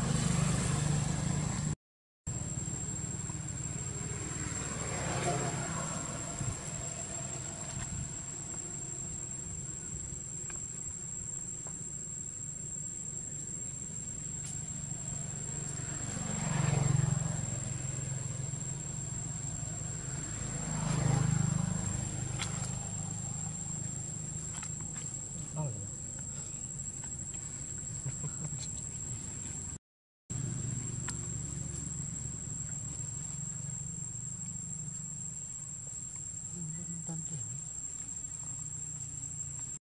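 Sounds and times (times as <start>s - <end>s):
high-pitched insect drone: 2.3s - 28.9s.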